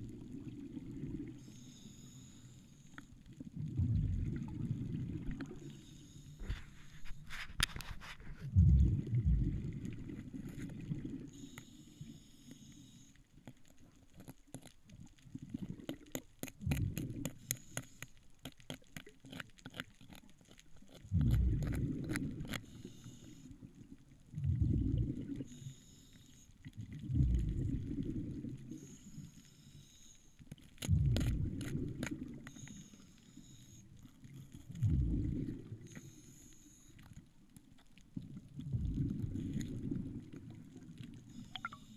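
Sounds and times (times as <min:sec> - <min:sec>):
exhaled bubbles rumbling underwater: 0:00.0 - 0:01.6, 0:03.1 - 0:05.9, 0:08.2 - 0:11.8, 0:14.8 - 0:17.5, 0:21.0 - 0:25.7, 0:26.6 - 0:29.2, 0:30.8 - 0:32.6, 0:34.0 - 0:36.2, 0:37.4 - 0:41.9
regulator hiss on inhale: 0:01.4 - 0:03.2, 0:05.5 - 0:08.2, 0:11.2 - 0:13.3, 0:17.3 - 0:18.3, 0:22.6 - 0:23.7, 0:25.4 - 0:26.7, 0:28.6 - 0:30.8, 0:32.4 - 0:34.3, 0:35.5 - 0:37.3, 0:41.2 - 0:41.9.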